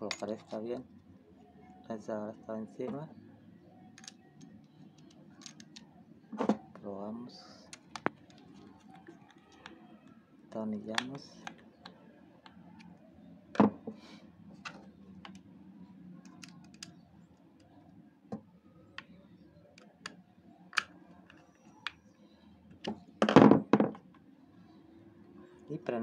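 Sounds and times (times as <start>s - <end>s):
small metal clicks: 4.0s - 5.9s.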